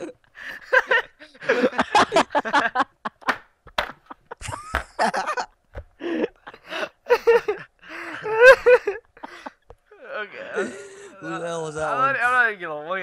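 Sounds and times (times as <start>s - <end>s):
young people laughing and talking: 0.0s - 3.2s.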